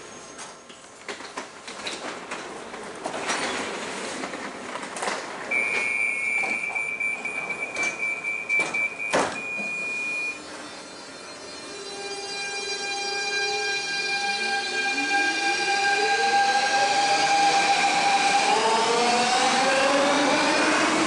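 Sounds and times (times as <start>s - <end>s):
sliding doors shutting: 0.3s - 10.7s
high door warning tone: 5.5s - 12.9s.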